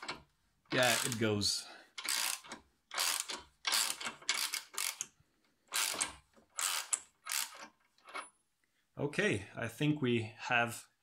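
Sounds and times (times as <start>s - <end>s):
ratchet wrench clicking: 0.8s - 1.2s, 2.0s - 5.1s, 5.7s - 7.7s.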